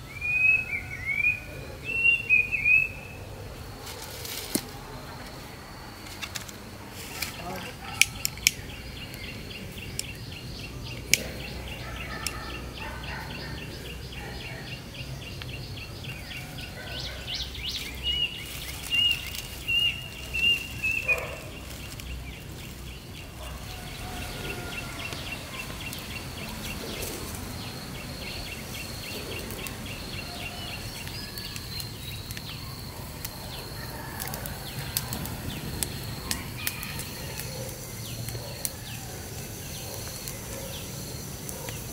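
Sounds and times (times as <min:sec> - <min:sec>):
birds chirping: 0:00.0 - 0:41.9
twigs and dry leaves rustling: 0:03.6 - 0:41.9
sharp clicks: 0:06.1 - 0:09.3.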